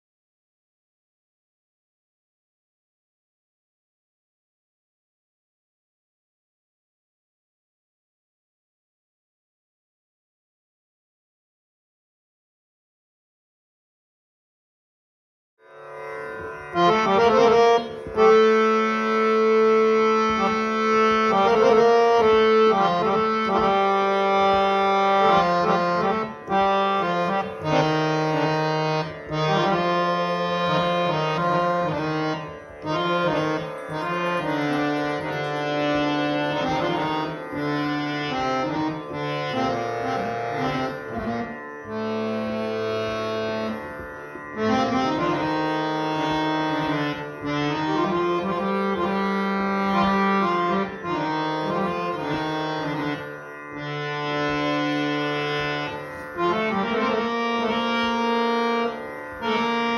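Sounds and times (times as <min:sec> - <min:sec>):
harmonium melody: 0:15.6 - 0:59.9.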